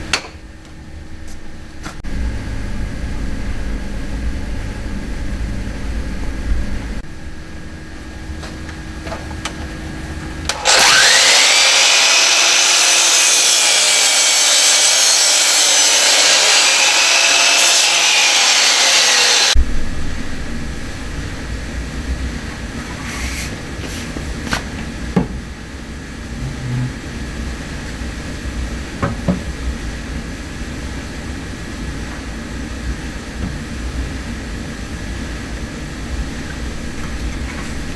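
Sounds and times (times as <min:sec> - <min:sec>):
low hum: 0:00.4 - 0:11.9, 0:19.5 - 0:23.0, 0:24.9 - 0:28.8
mitre saw cutting wood: 0:10.5 - 0:19.6.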